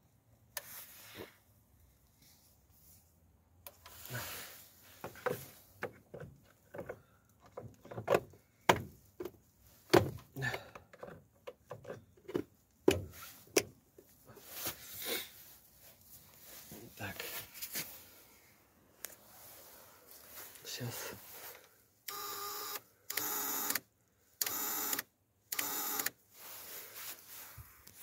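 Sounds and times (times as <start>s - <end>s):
rustling of hands and cable: 0.4s - 21.9s, 26.2s - 28.0s
hard plastic clicks and knocks: 5.0s - 13.7s.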